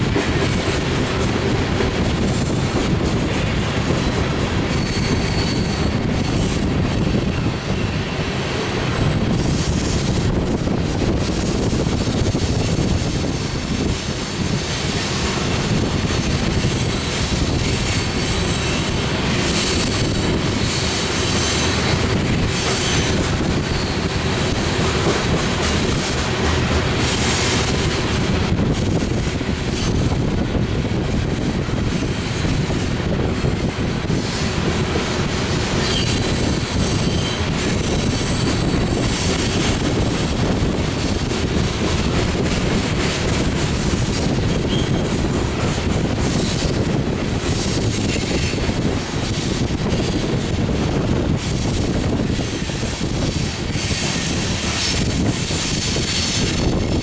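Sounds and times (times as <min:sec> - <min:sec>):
train wheels rumbling on rail: 0:00.0 - 0:57.0
high wheel squeal: 0:04.6 - 0:07.8, 0:22.8 - 0:24.2, 0:35.8 - 0:39.2.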